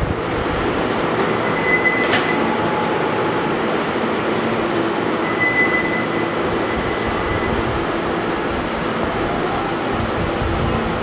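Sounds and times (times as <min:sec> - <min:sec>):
train wheels rumbling on rail: 0:00.0 - 0:11.0
high wheel squeal: 0:01.0 - 0:08.4.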